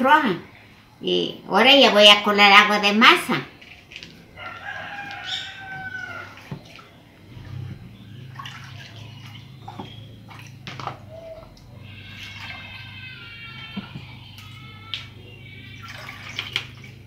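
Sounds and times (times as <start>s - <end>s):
low steady hum: 0.0s - 17.0s
water sloshing and dripping: 3.3s - 17.0s
hands squeezing dough in water: 3.5s - 17.0s
high calls: 4.4s - 16.9s.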